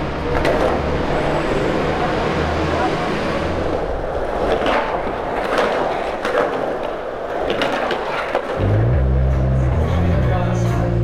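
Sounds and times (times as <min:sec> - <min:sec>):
skateboard clacks: 0:00.0 - 0:01.0, 0:03.7 - 0:09.4
skateboard wheels rolling: 0:00.0 - 0:10.2.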